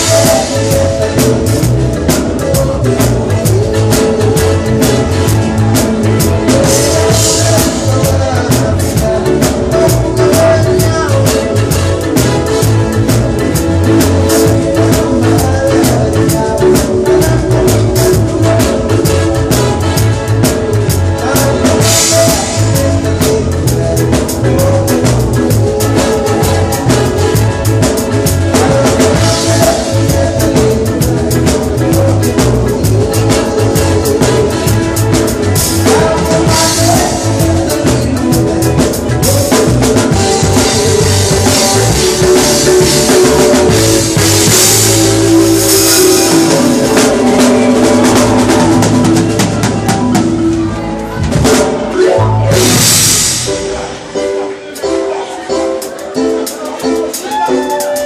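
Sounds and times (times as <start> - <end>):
bass drum and snare beat: 0.0 - 50.6
live band playing: 0.0 - 58.0.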